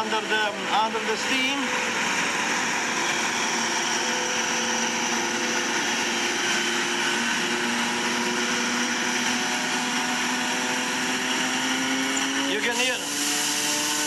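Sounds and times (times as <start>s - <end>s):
steam turbine whining: 0.0s - 14.0s
steam hissing: 12.3s - 14.0s.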